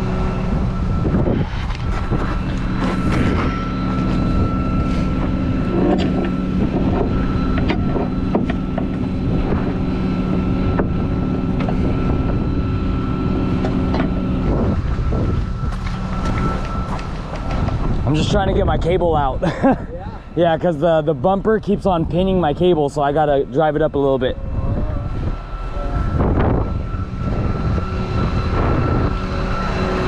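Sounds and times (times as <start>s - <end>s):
thin high tone: 0.0s - 30.0s
truck engine humming: 0.0s - 30.0s
metal clanks and knocks: 5.2s - 10.9s.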